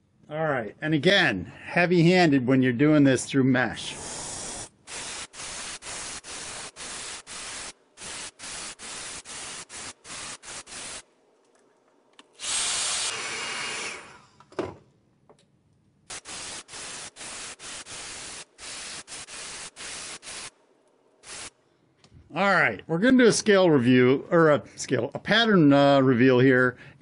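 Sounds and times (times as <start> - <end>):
airbrush hissing in bursts: 3.8 - 11.0, 12.4 - 14.0, 16.1 - 20.5, 21.2 - 21.6.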